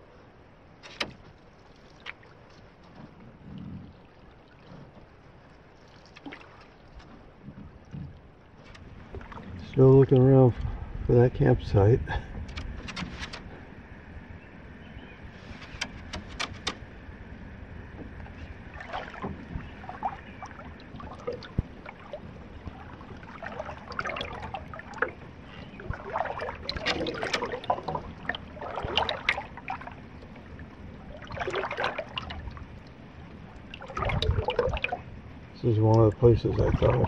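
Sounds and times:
canoe paddle strokes: 0:00.7 - 0:10.8, 0:12.3 - 0:13.7, 0:15.2 - 0:35.2
water dripping off paddle: 0:00.8 - 0:09.8, 0:17.9 - 0:35.1
sharp clicks: 0:15.5 - 0:16.8.

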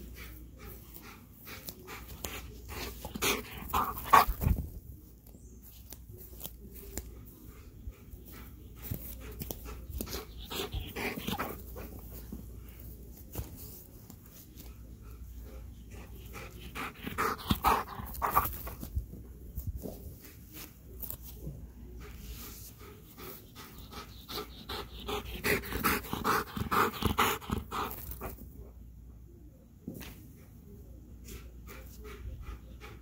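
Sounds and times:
dog panting: 0:00.0 - 0:04.6, 0:07.4 - 0:12.2, 0:14.6 - 0:18.9, 0:21.9 - 0:28.4, 0:31.4 - 0:33.0.

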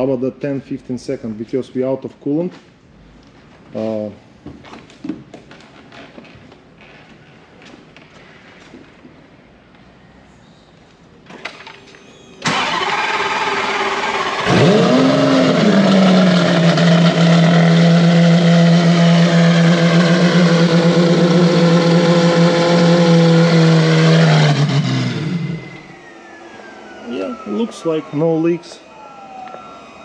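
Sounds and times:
starter cranking: 0:12.4 - 0:25.8
car engine idling: 0:12.5 - 0:28.4.

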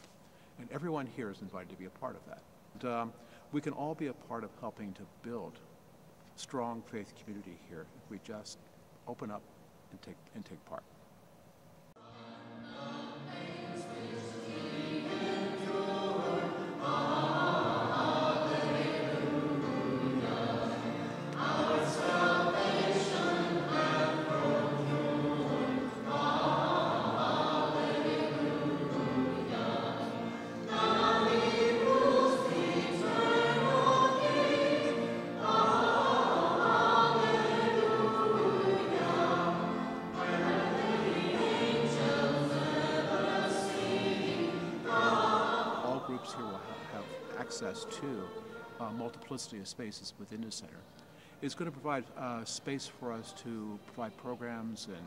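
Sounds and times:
choir singing: 0:12.0 - 0:49.6, 0:51.4 - 0:55.0.

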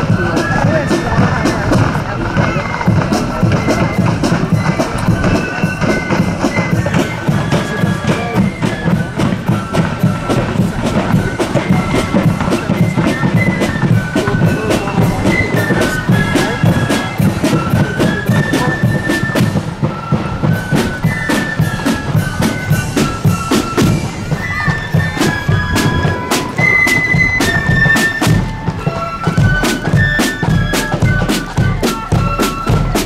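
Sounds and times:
fast side drum strokes: 0:00.0 - 0:33.0
flutes playing melody: 0:00.0 - 0:33.0.

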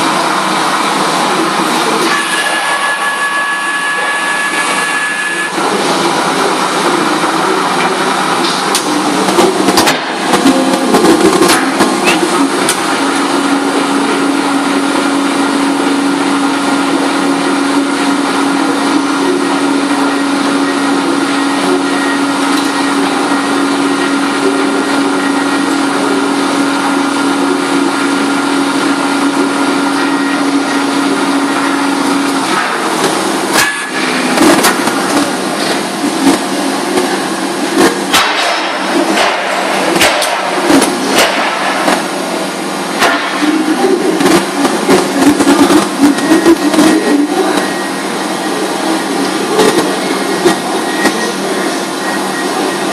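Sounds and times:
paper-trimming machine humming: 0:00.0 - 0:52.9.

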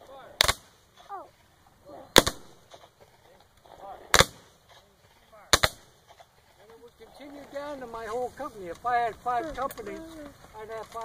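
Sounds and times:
musket shots: 0:00.4 - 0:00.8, 0:02.1 - 0:02.9, 0:04.1 - 0:04.6, 0:05.5 - 0:06.0.

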